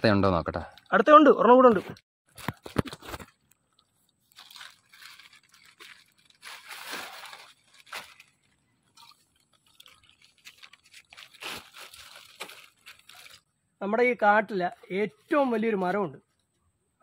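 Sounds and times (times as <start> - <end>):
rustling and crunching: 2.3 - 13.5.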